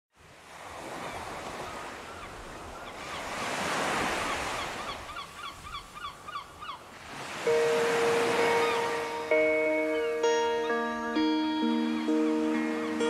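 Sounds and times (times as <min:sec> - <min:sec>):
waves washing: 0:00.2 - 0:13.0.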